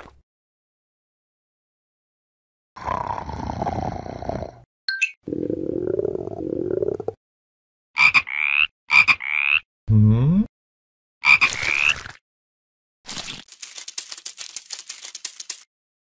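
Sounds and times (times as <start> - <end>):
fast dry clicking rattle: 13.4 - 15.7.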